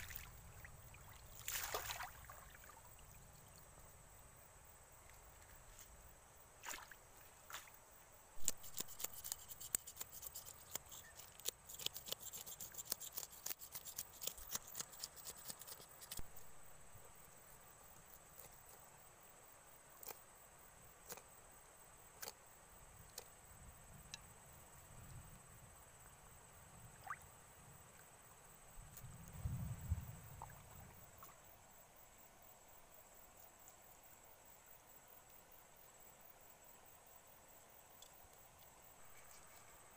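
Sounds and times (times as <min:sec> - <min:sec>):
fish scales scraping: 0:08.4 - 0:16.2.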